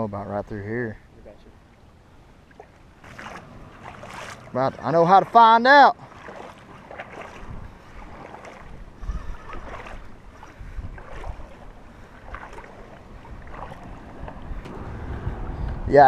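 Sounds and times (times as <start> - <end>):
wading through mud and water: 1.0 - 16.0
wind noise on microphone: 7.2 - 16.0.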